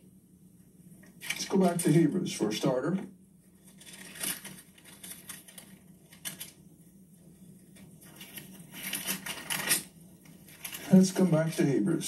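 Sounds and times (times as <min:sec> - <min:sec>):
pages rustling: 0:03.6 - 0:06.6, 0:07.8 - 0:11.7.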